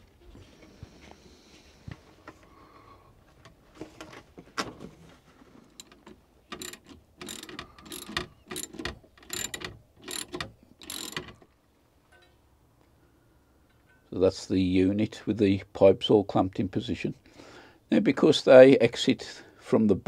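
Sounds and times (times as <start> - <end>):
ratcheting tool rasps: 5.8 - 11.4.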